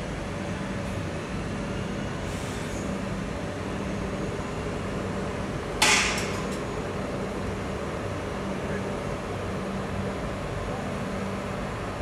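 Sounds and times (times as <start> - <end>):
electric train humming: 0.0 - 5.8
compressed air hiss: 2.2 - 2.9.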